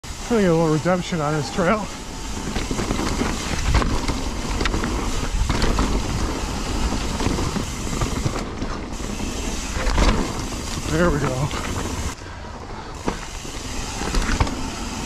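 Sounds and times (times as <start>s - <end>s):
bike tyres on dirt trail: 0.0s - 15.0s
bike knocking over bumps: 2.4s - 8.9s, 9.7s - 11.9s, 13.0s - 14.8s.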